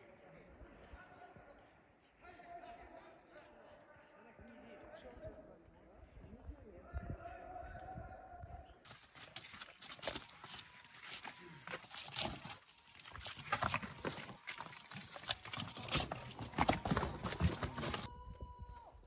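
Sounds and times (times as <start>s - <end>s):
donkey hooves on rocks: 8.9s - 18.1s.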